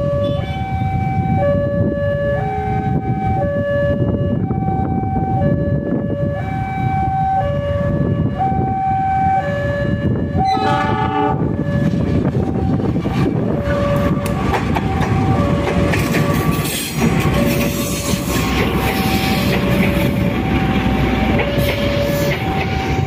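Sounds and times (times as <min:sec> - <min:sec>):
locomotive engine: 0:09.7 - 0:23.0
train horn: 0:10.4 - 0:11.6
train wheels clattering: 0:14.0 - 0:20.3
level crossing two-tone alarm: 0:19.0 - 0:23.0.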